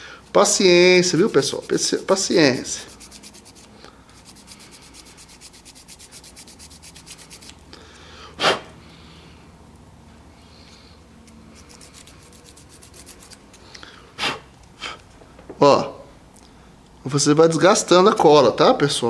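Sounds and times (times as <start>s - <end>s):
nail file rasping: 0.5s - 7.6s, 11.3s - 13.7s.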